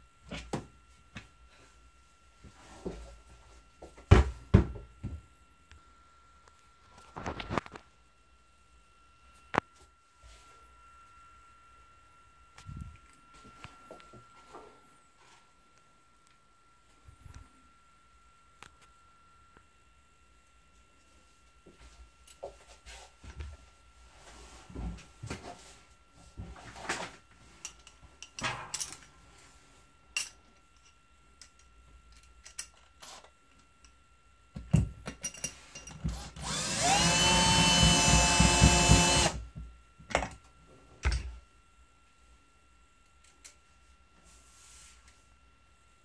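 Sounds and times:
drill motor whine: 0:36.0 - 0:39.5.

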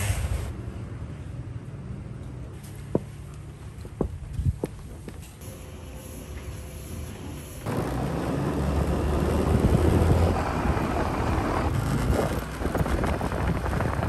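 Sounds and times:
road noise: 0:00.0 - 0:14.0
wind rumbling on microphone: 0:04.0 - 0:05.2, 0:07.7 - 0:14.0
motor scooter engine: 0:07.6 - 0:14.0.

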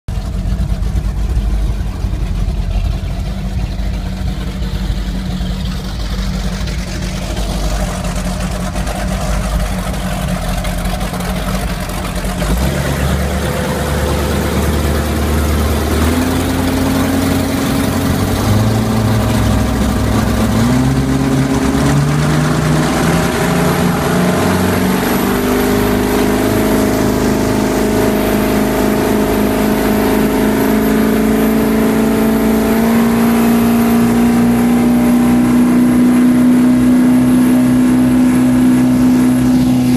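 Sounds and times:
powerboat engine: 0:00.1 - 0:39.9.

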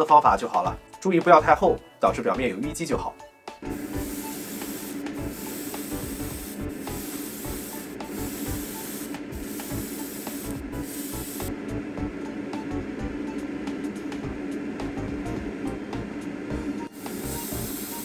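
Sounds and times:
airbrush spraying hiss: 0:03.7 - 0:11.6, 0:16.8 - 0:18.0.

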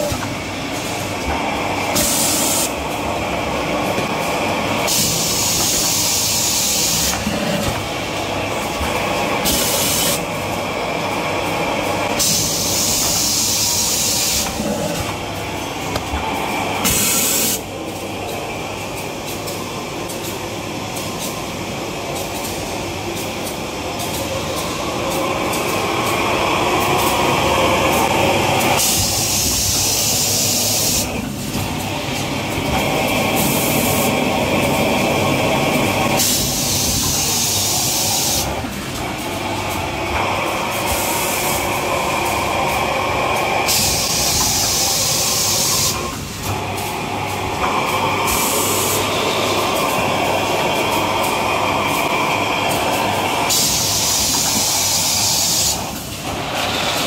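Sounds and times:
packaging machinery running: 0:00.0 - 0:57.0
loud machine hisses: 0:01.9 - 0:02.8, 0:04.8 - 0:07.6, 0:09.4 - 0:10.3, 0:12.0 - 0:15.1, 0:16.8 - 0:17.6, 0:24.4 - 0:31.2, 0:32.8 - 0:38.6, 0:40.3 - 0:57.0.

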